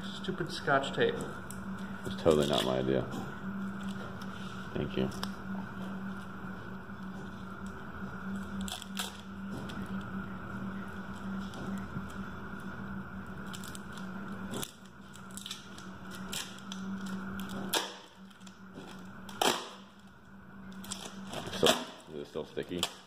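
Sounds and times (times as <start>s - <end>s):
low hum: 0.0s - 23.0s
plastic film crinkling and tearing: 8.6s - 9.3s, 13.4s - 23.0s.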